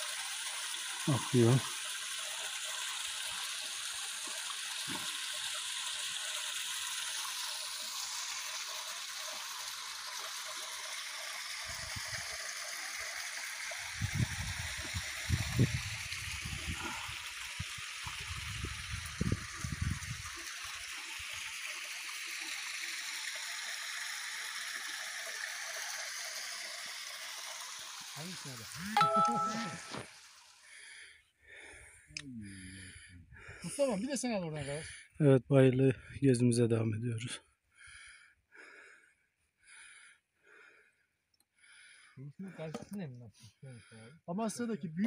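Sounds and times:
spring water splashing into pool: 0:00.0 - 0:31.0.

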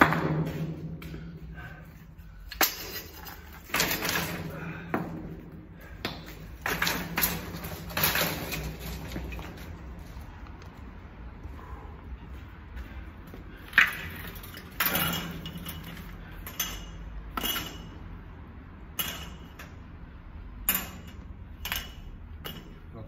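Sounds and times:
metal objects clanking: 0:02.5 - 0:04.7, 0:06.4 - 0:09.8, 0:13.7 - 0:18.2, 0:20.6 - 0:22.9.

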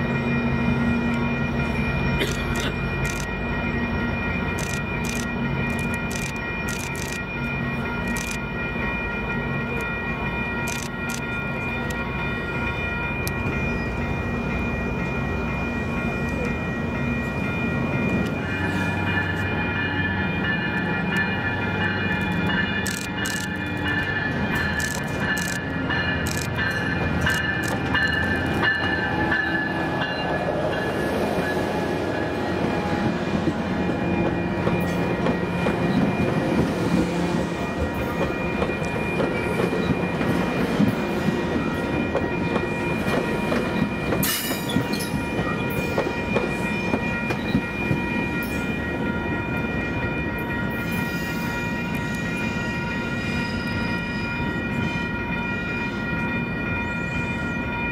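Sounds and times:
rail and wheel noise: 0:00.0 - 0:57.9
train wheels clattering on track: 0:04.5 - 0:07.3, 0:18.1 - 0:31.6, 0:33.4 - 0:48.9.

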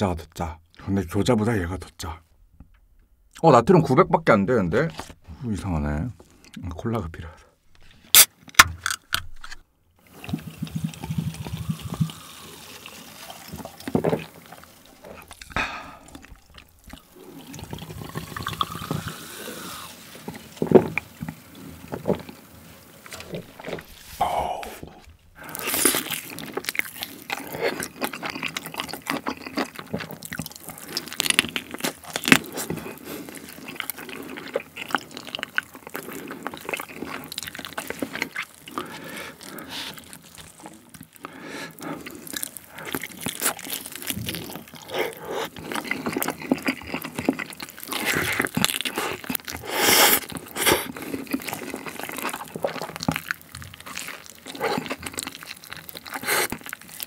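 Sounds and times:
wet chewing and crunching: 0:07.8 - 0:57.0
gloved hands handling food: 0:19.1 - 0:57.0.

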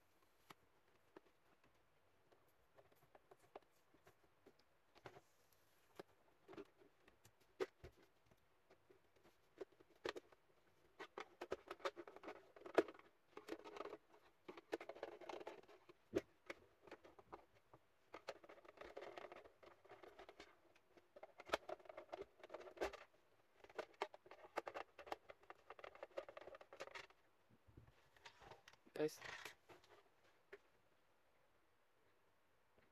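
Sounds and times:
plastic scraping: 0:18.1 - 0:27.2, 0:28.1 - 0:30.1.

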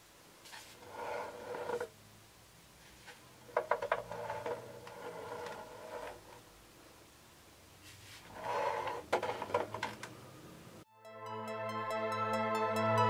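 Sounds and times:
skids scraping on wooden table: 0:00.4 - 0:01.9, 0:02.9 - 0:06.5, 0:07.8 - 0:10.2.

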